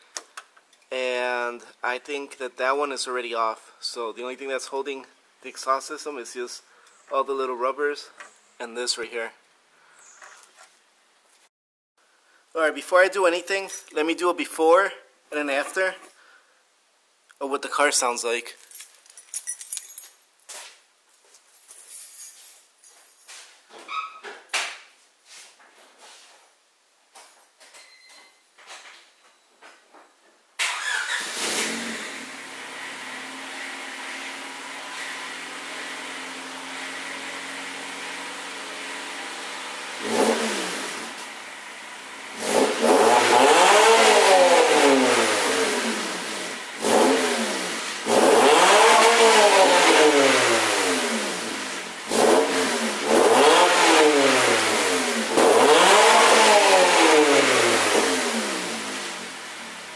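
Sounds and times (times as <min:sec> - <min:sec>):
car engine starting and idling: 0:30.6 - 0:59.9
car engine revving: 0:30.7 - 0:59.8.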